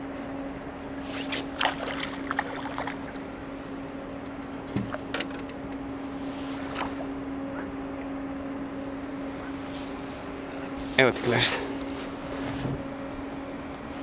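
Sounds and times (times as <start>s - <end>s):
dull thump: 12.4s - 12.9s.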